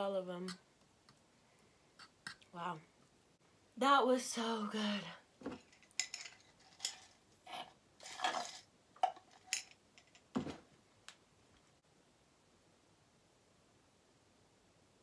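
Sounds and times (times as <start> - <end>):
glass jar clinks and knocks: 5.4 - 7.1, 8.0 - 10.6.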